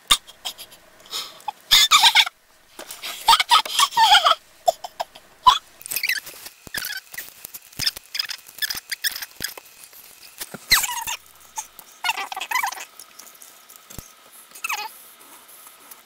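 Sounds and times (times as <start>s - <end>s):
high squeaky vocal sounds: 1.5s - 2.3s, 3.1s - 9.6s, 10.2s - 13.0s, 14.6s - 15.0s
plastic wrapper crinkling: 5.8s - 12.2s.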